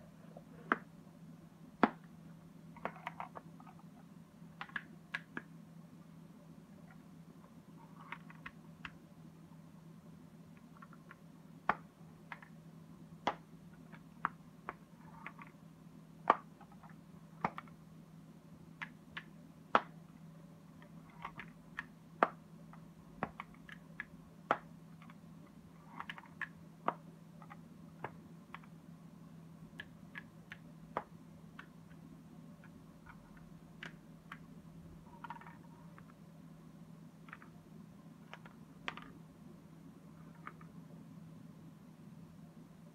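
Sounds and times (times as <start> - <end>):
wooden puzzle panels clicking: 35.2 - 36.2.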